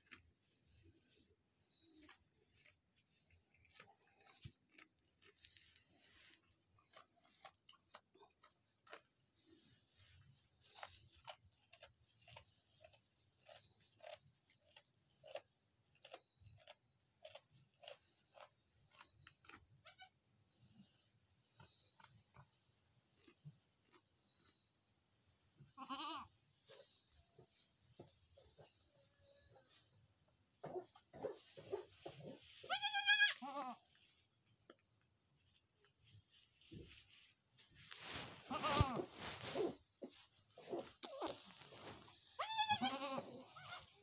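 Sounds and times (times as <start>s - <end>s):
goats rustling in straw: 0.0s - 6.7s, 8.5s - 11.2s, 31.3s - 34.4s, 35.4s - 43.9s
goat kid bleating: 19.8s - 20.2s, 25.7s - 26.3s, 32.6s - 33.9s, 38.5s - 39.1s, 42.1s - 44.0s
straw bedding crackling: 36.2s - 42.2s.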